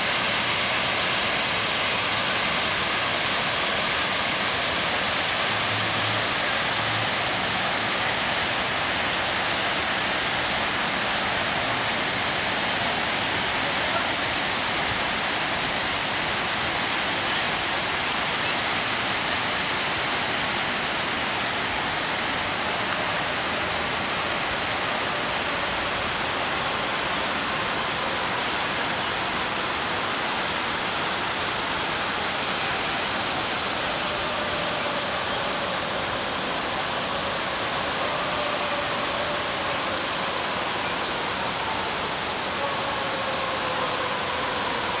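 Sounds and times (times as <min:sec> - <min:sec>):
fountain water rushing: 0:00.0 - 0:45.0.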